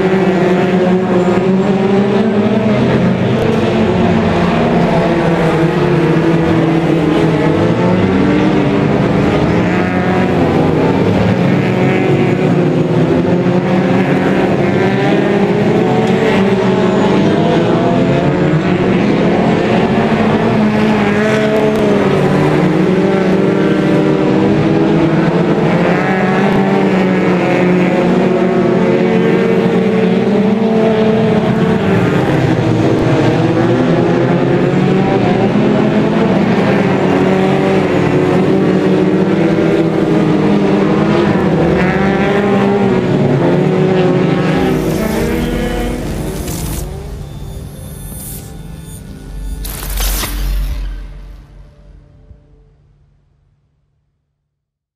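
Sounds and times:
racing car engines: 0:00.0 - 0:53.2.

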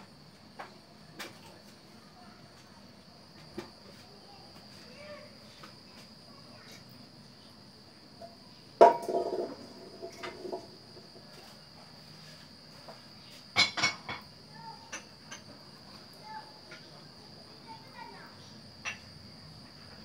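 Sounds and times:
frying pan set on burner grate: 0:08.8 - 0:10.8.

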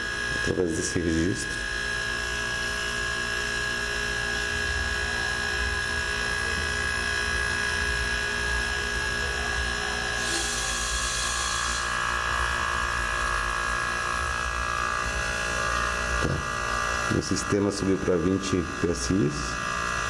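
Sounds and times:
refrigeration compressor humming: 0:00.0 - 0:20.0
gas hissing from valve: 0:10.1 - 0:12.0.

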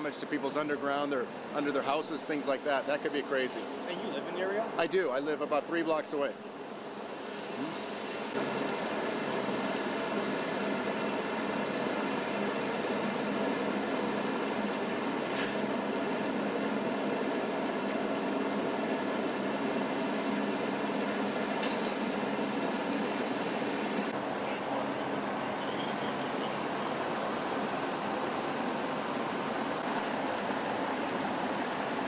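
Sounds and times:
water rushing along street: 0:00.0 - 0:32.0.

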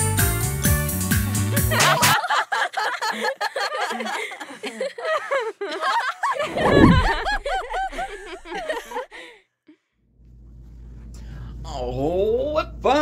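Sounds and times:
snickering and giggling: 0:01.8 - 0:06.3
deep sound falling in pitch: 0:06.5 - 0:08.6.

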